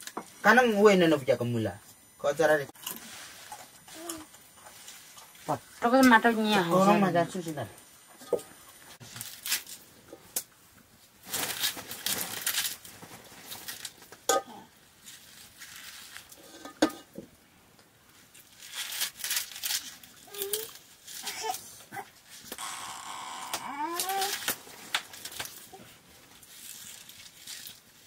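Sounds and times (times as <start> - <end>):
leafy greens rustling: 9.0 - 9.9, 11.0 - 14.1, 15.0 - 16.6, 18.2 - 22.6, 23.8 - 28.0.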